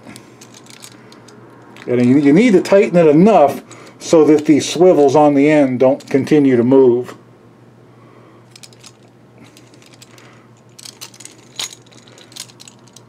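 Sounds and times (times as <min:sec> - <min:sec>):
plastic and metal parts clicking: 0:00.1 - 0:01.9.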